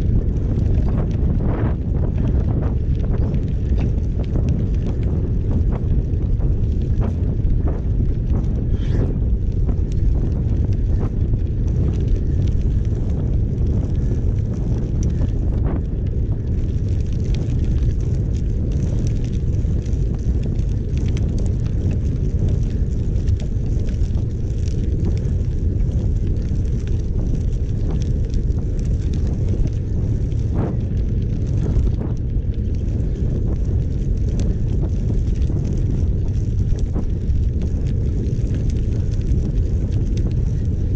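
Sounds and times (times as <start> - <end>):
wind buffeting microphone: 0.0 - 40.9.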